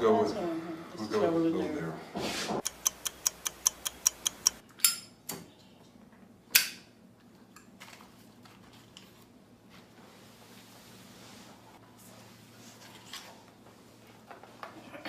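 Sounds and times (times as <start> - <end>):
sharp clock ticks: 2.6 - 4.6.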